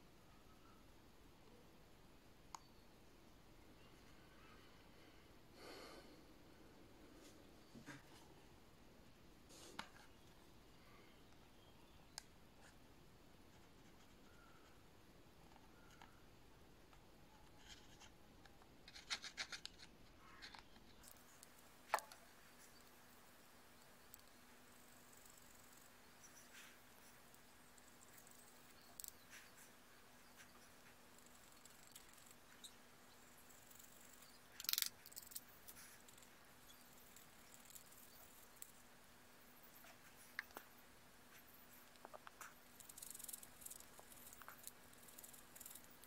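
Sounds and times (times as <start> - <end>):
faint ticks: 23.7 - 38.8, 39.6 - 46.0
toothpick scratching remote keys: 31.2 - 38.7, 42.5 - 46.0.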